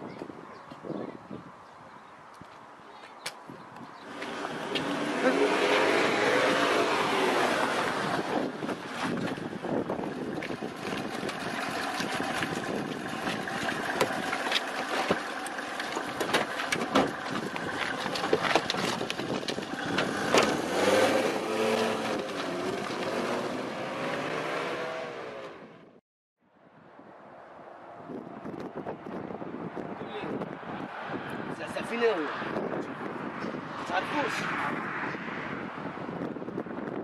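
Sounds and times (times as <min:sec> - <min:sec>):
wind buffeting microphone: 0:00.0 - 0:24.6, 0:27.8 - 0:37.0
knocks and thuds around car: 0:16.0 - 0:20.6.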